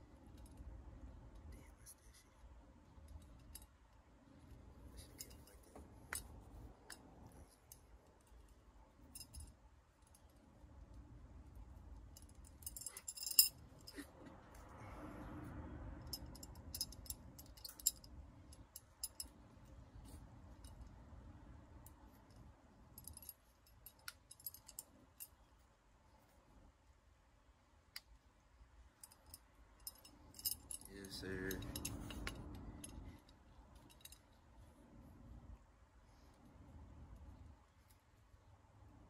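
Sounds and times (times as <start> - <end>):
metal belt buckle clinking: 5.0 - 10.4, 12.1 - 14.1, 16.0 - 19.4, 23.0 - 25.4, 29.0 - 34.4.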